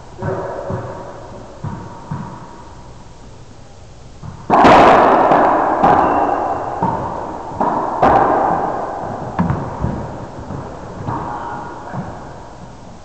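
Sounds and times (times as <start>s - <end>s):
racquetball ball smacks: 4.2s - 12.3s.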